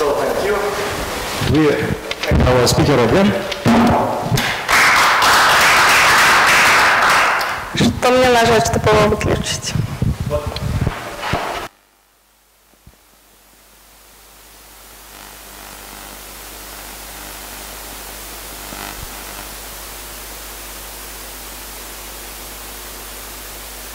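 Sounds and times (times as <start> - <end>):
electronic hiss: 7.4 - 23.9.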